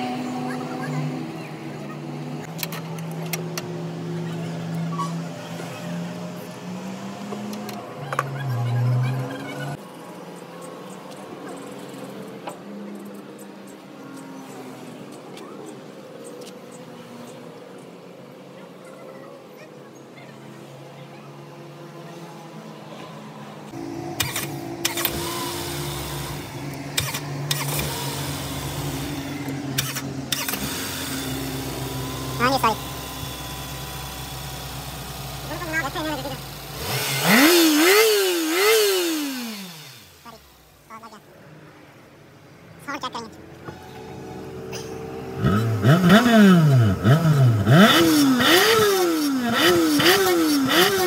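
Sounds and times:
petrol engine revving: 0.0 - 9.8, 21.6 - 41.2, 43.4 - 51.0
car engine idling: 23.6 - 41.2.

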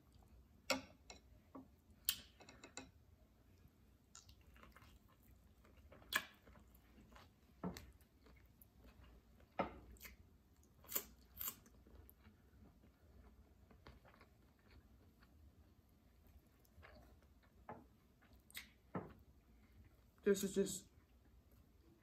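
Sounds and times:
wet chewing: 4.1 - 15.5.

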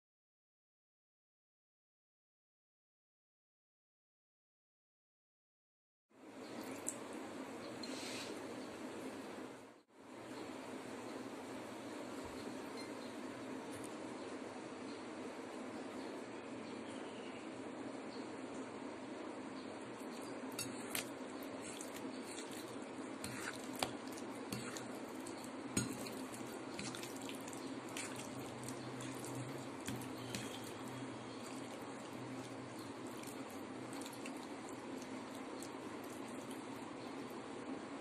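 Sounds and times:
steady low hum: 6.2 - 38.0
wet squelching of meat mixed by hand: 20.1 - 36.9.

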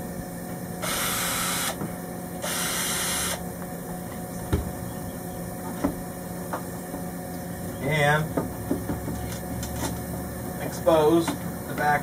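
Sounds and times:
cordless drill running: 0.8 - 1.8, 2.4 - 3.4.

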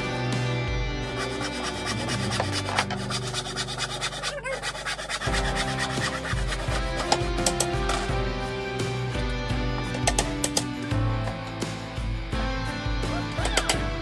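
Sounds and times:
sandpaper rasping on wood: 1.1 - 7.5.

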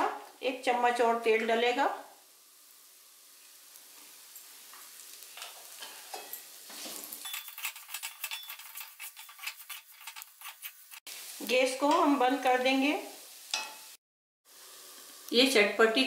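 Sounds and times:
oil sizzling in a pan: 0.0 - 16.0
wooden spatula scraping a pan: 5.4 - 11.1.

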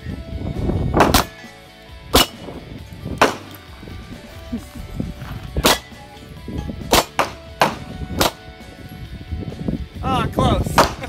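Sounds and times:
pistol shots: 1.0 - 1.4, 2.1 - 2.6, 3.2 - 3.6, 5.6 - 6.0, 6.9 - 8.4, 10.8 - 11.0.

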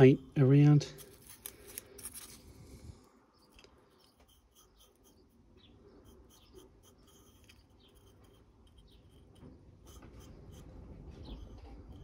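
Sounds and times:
paintbrush scratching on plastic: 3.9 - 12.0.

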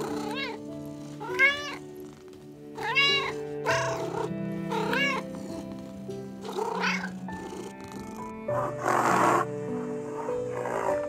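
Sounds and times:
cat meowing: 0.0 - 2.1, 2.8 - 5.8, 6.4 - 8.1
soft background music: 0.0 - 11.0.

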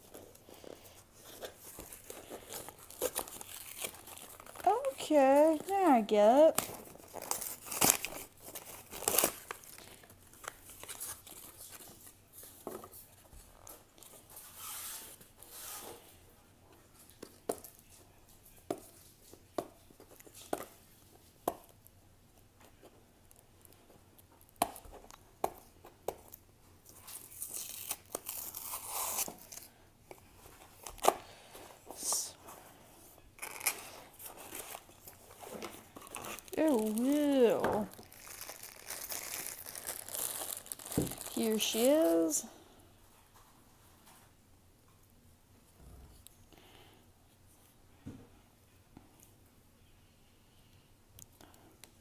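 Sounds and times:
cardboard ripping and crinkling: 1.2 - 5.7, 6.6 - 9.8, 27.1 - 29.7, 33.4 - 42.3.

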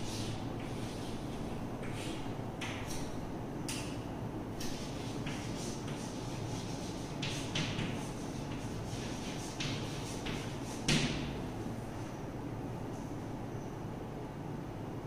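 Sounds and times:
chalk scratching on blackboard: 0.0 - 2.2, 4.6 - 11.4
room hum: 0.0 - 15.0
chalk tap: 4.6 - 11.3.

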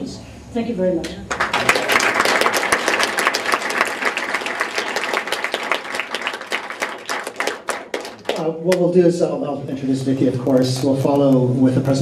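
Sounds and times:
audience applauding: 1.3 - 8.9.

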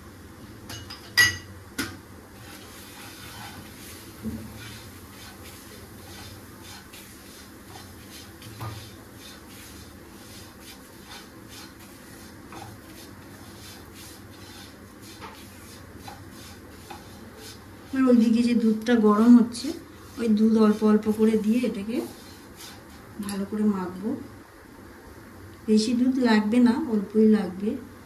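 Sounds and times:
spatula scraping pan: 2.3 - 23.3.

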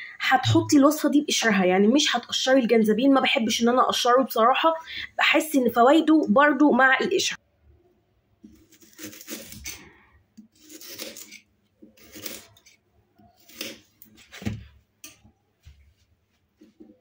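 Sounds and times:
knife slicing ginger root: 8.4 - 14.6.

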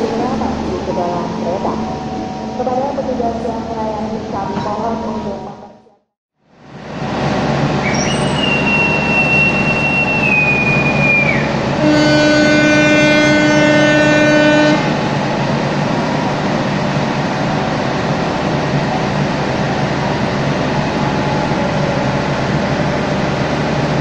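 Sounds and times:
idling locomotive hum: 0.0 - 5.7, 6.4 - 24.0
high whistle: 7.8 - 11.5
locomotive horn blast: 7.9 - 15.0.

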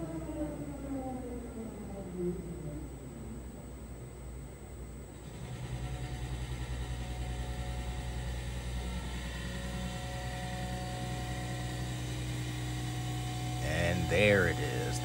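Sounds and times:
low hum: 0.0 - 15.0
lathe cutting metal wheel: 5.2 - 15.0.

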